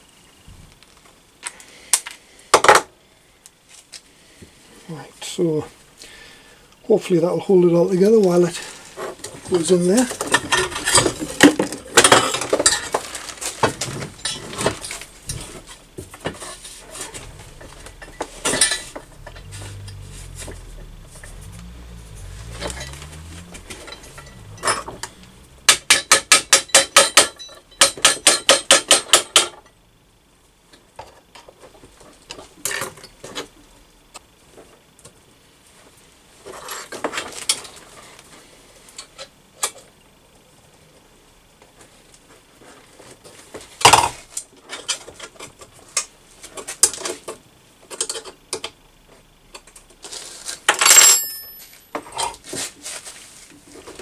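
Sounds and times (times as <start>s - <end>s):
rapid metallic strikes: 16.9s - 29.5s.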